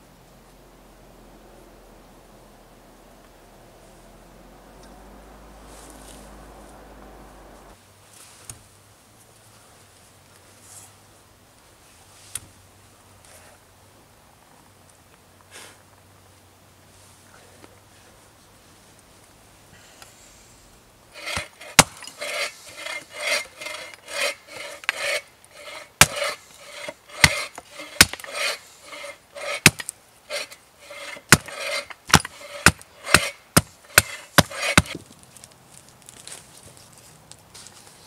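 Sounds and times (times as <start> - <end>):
blade shaving wood: 21.2 - 35.0.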